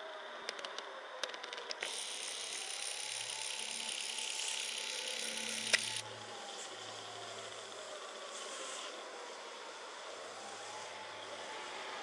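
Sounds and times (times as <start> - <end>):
lens zoom motor whirring: 1.7 - 6.0
sharp click: 4.8 - 6.0.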